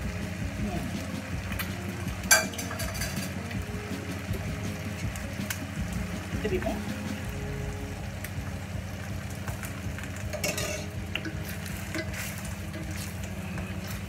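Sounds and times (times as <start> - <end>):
tomato sauce sizzling: 0.0 - 14.0
spoons clicking and scraping in pot: 9.6 - 14.0.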